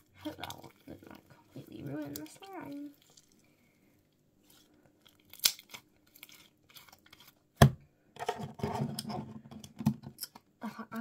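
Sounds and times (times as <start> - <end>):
slime squelching crackle: 0.0 - 3.6, 4.4 - 7.4
slime clicking and popping: 5.3 - 5.8.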